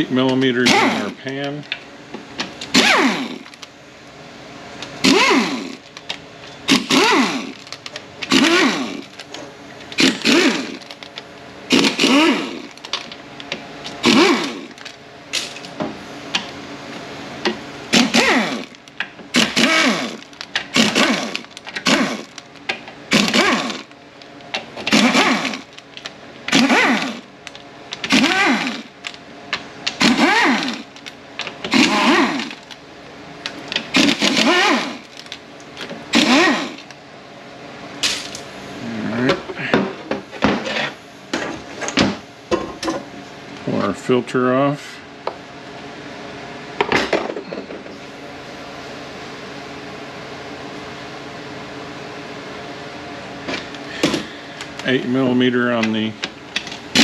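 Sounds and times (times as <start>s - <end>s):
air ratchet whirring: 0.6s - 1.2s, 2.6s - 3.7s, 5.0s - 9.2s, 9.9s - 11.0s, 11.7s - 12.9s, 13.9s - 15.7s, 17.9s - 22.4s, 23.1s - 24.0s, 24.8s - 25.8s, 26.5s - 29.2s, 29.8s - 32.8s, 33.7s - 35.3s, 36.1s - 36.9s.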